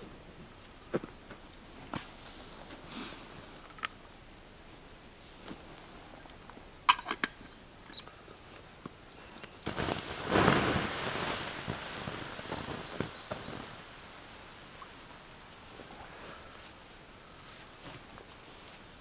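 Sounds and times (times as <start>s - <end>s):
embers crackling: 8.6s - 19.0s
water hissing on hot embers: 9.6s - 19.0s.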